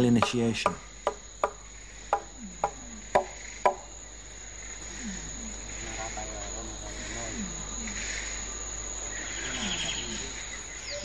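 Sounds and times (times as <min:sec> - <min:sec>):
high-pitched insect drone: 0:00.0 - 0:11.0
sharp knocks: 0:00.1 - 0:03.9.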